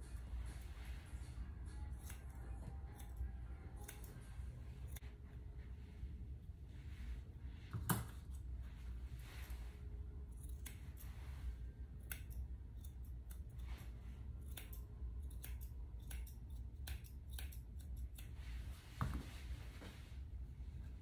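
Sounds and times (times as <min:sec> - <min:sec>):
low steady hum: 0:00.0 - 0:21.0
shears snipping fur: 0:00.1 - 0:05.3, 0:07.7 - 0:19.2.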